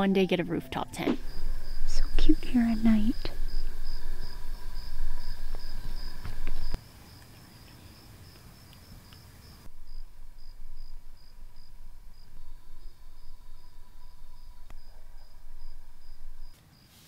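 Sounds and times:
low rumble: 0:00.0 - 0:06.8, 0:09.7 - 0:16.5
crickets chirping: 0:00.6 - 0:16.9.

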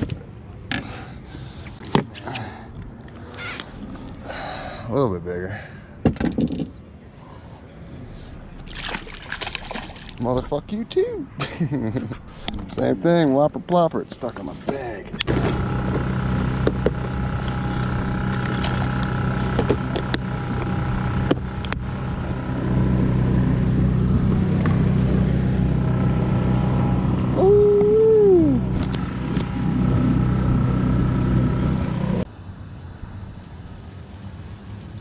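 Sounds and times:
boat motor running: 0:15.2 - 0:32.3.

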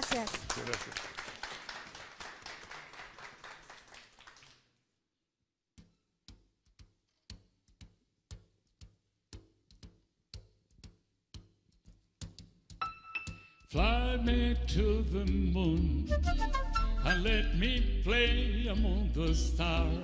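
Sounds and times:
audience applause: 0:00.0 - 0:04.6.

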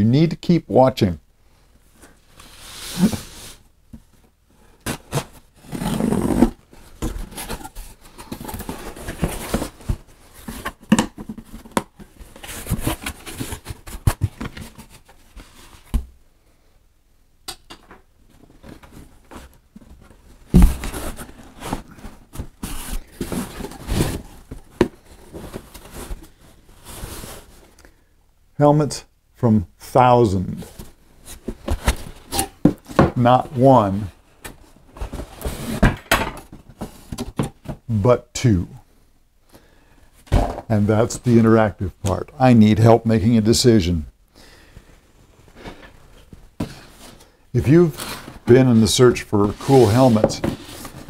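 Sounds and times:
cardboard flaps rustling: 0:04.8 - 0:16.1, 0:18.4 - 0:27.7, 0:30.6 - 0:37.9, 0:45.7 - 0:51.0.

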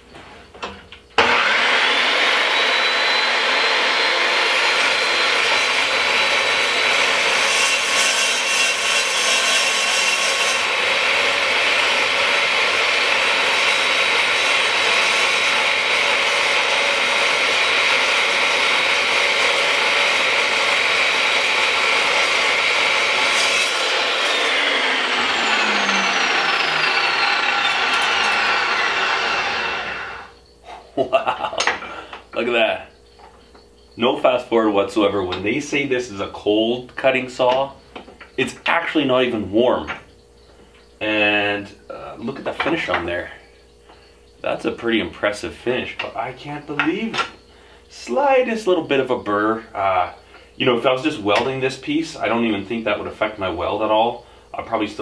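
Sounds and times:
metal chop saw whining: 0:00.6 - 0:30.5
saw blade spinning down: 0:01.2 - 0:30.4.

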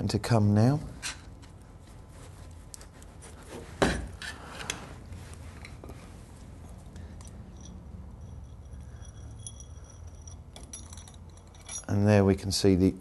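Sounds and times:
soft handling sounds: 0:00.9 - 0:11.9
light metal clinks: 0:06.6 - 0:12.3.

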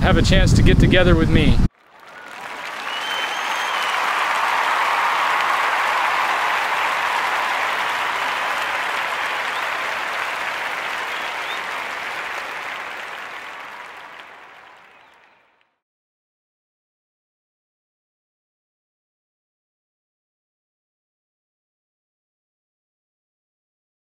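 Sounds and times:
audience applause: 0:01.7 - 0:15.6.

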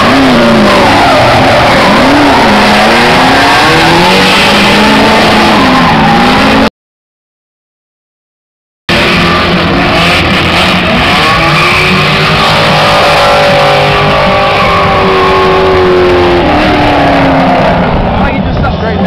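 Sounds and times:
car engines revving hard: 0:00.0 - 0:06.7, 0:08.9 - 0:19.0.

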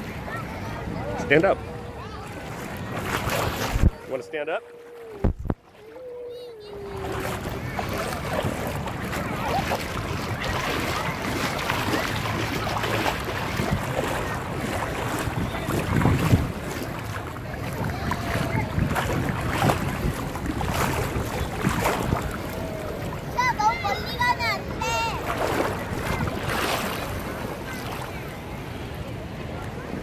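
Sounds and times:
shallow water lapping: 0:00.0 - 0:30.0
wind buffeting microphone: 0:02.3 - 0:04.1, 0:05.1 - 0:05.7, 0:06.7 - 0:28.2.

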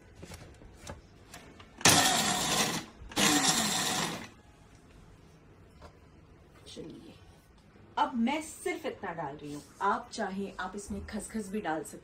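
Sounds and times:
electric grinder grinding almonds: 0:01.8 - 0:04.4.

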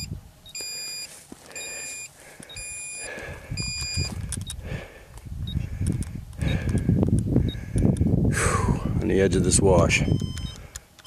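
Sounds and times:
high-pitched beeps: 0:00.0 - 0:04.6, 0:10.0 - 0:10.6
footsteps on stony ground: 0:00.6 - 0:06.0.

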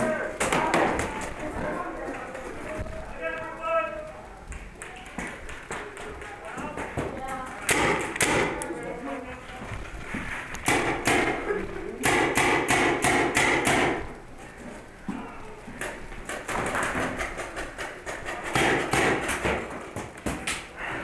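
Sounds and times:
paintball markers firing: 0:07.6 - 0:08.7.

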